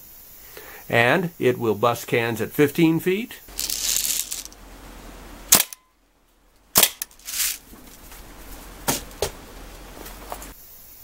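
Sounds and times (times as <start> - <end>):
bb rifle shots: 5.5 - 5.8, 6.8 - 7.1.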